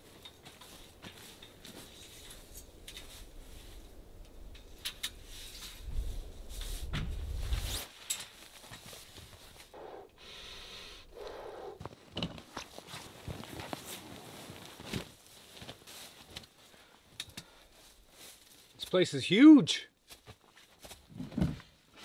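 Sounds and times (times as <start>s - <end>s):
fabric rustling: 12.5s - 16.4s.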